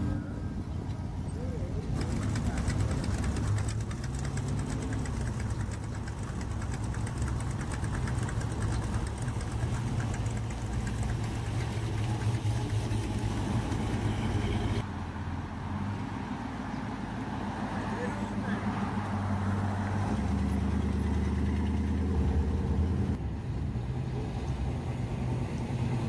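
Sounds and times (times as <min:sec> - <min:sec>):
car engine idling: 0:00.0 - 0:14.9.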